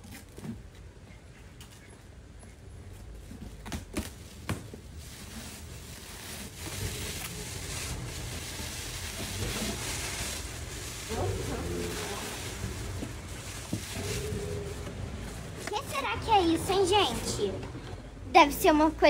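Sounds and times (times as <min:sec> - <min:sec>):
plastic wrap rustling: 0:03.2 - 0:17.5.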